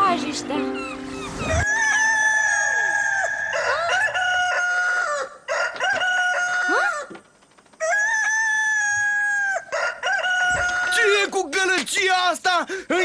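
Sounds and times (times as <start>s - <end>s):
cartoon rooster crowing: 1.4s - 7.1s, 7.8s - 11.0s.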